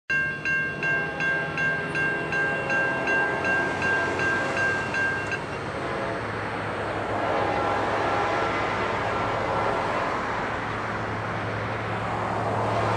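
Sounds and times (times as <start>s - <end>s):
crossing bell striking: 0.1s - 5.8s
locomotive horn: 0.7s - 10.7s.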